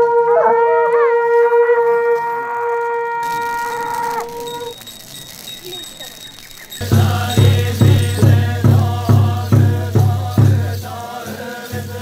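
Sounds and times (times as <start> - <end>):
wavering conch note: 0.0 - 4.8
conch-shell trumpet blast: 0.0 - 5.5.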